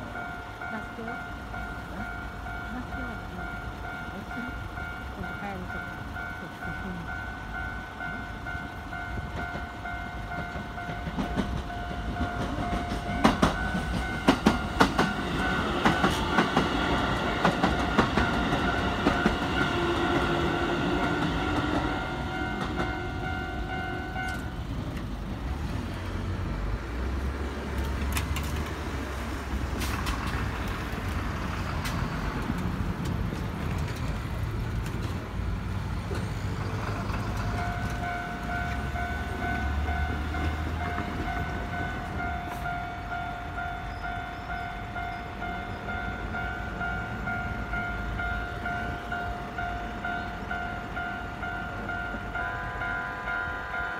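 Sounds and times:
level-crossing warning bell ringing: 0.0 - 24.8, 37.2 - 53.9
low train rumble: 0.0 - 53.9
train wheels clicking over rail joints: 7.8 - 46.0.

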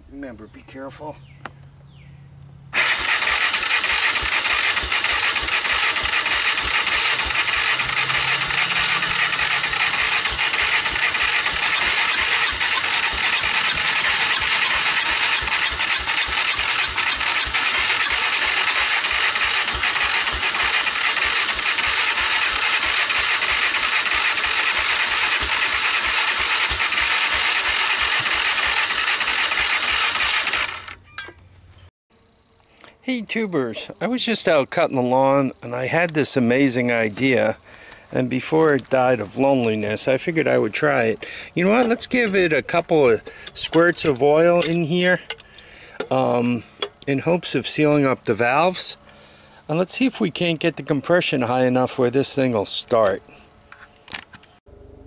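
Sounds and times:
engine cranking on electric starter: 2.7 - 31.0, 41.2 - 47.2.

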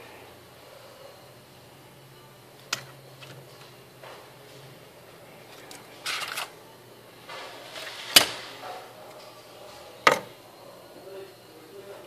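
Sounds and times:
metal scraping on workbench: 7.3 - 8.6.

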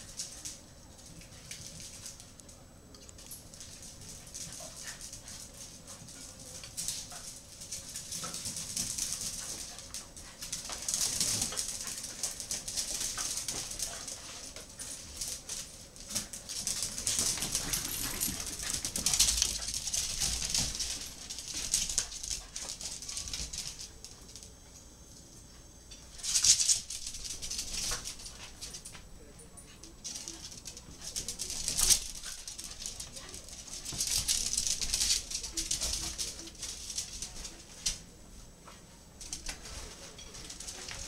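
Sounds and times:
dog claws clicking on hard floor: 3.0 - 24.3.

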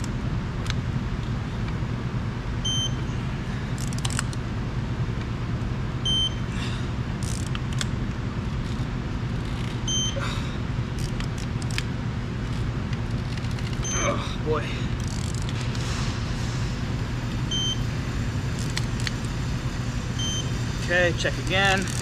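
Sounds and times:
steady low hum: 0.0 - 22.0
torque wrench beeping: 2.6 - 3.0, 6.0 - 6.5, 7.2 - 7.6, 9.8 - 10.2, 13.8 - 14.2, 17.5 - 17.8, 20.2 - 20.6
ratchet clicks: 3.8 - 4.4, 7.2 - 8.0, 11.0 - 11.9, 15.0 - 15.6, 18.6 - 19.2, 21.3 - 22.0.

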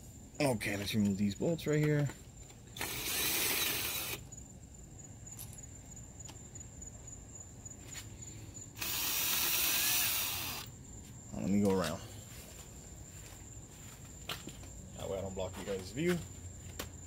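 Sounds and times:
cordless power tool running: 2.8 - 4.2, 8.8 - 10.7.

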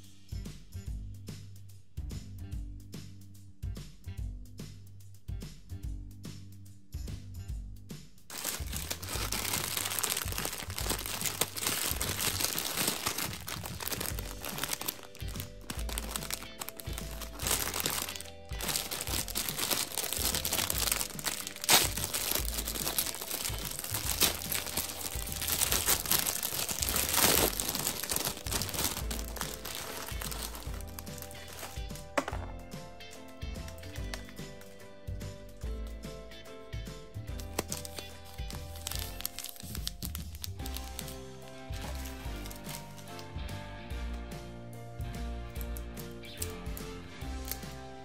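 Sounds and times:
light background music: 0.0 - 48.0
packet tearing: 8.3 - 32.5, 33.6 - 34.8, 37.4 - 43.3
plastic packet crinkling: 8.3 - 32.5, 33.6 - 34.8, 37.4 - 43.3.

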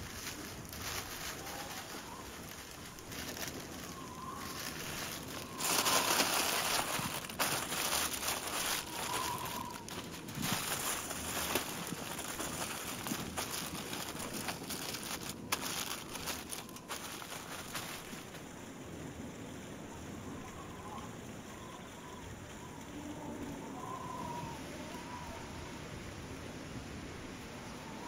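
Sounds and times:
aluminium foil crumpling: 0.0 - 18.5.

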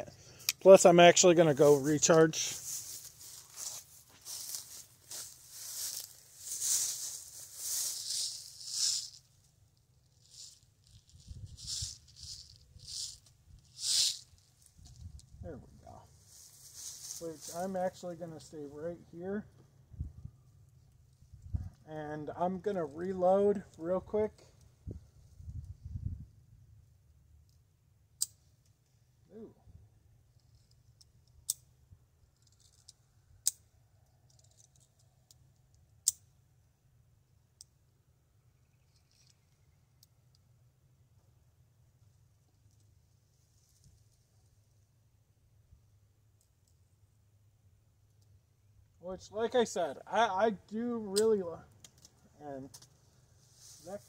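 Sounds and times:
rustling brushing sounds: 1.2 - 9.4, 10.1 - 18.1, 53.1 - 54.0
faint clicks and scraping: 32.3 - 36.2, 38.8 - 40.5.

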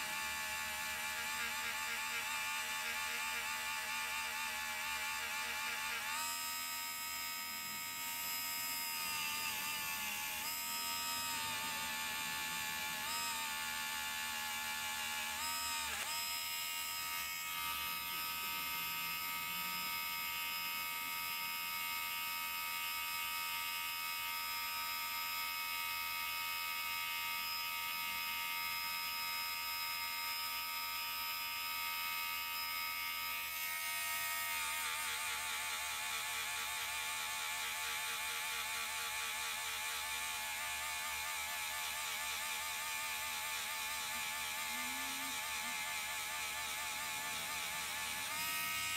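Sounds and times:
rotary tool polishing metal: 0.0 - 48.9.

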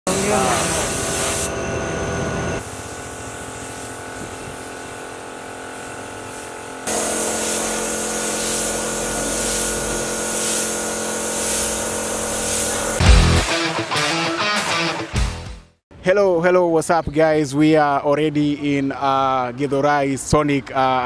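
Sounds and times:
paint spray gun hissing: 0.1 - 1.5, 2.6 - 13.1
steady hum: 0.1 - 13.4.

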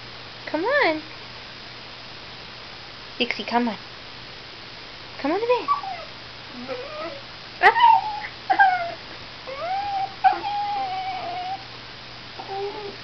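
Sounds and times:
dog whining: 5.6 - 11.7, 12.4 - 13.0.

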